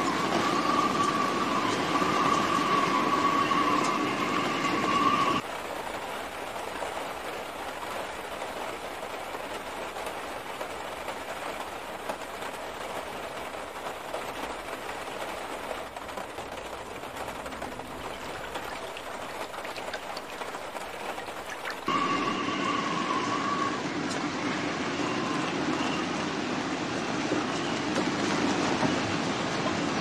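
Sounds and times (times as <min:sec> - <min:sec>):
rushing floodwater: 0:15.9 - 0:30.0.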